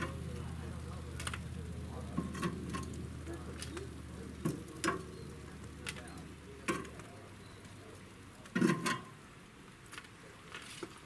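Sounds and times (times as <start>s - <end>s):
low steady hum: 0.0s - 11.0s
metal utensil clicking on grill grate: 1.1s - 5.1s, 5.8s - 7.1s, 8.4s - 9.1s.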